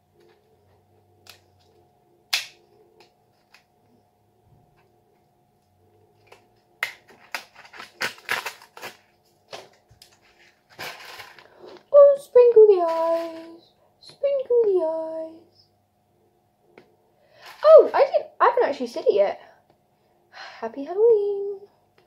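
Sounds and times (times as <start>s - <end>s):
plastic tray crinkling: 7.0s - 11.6s.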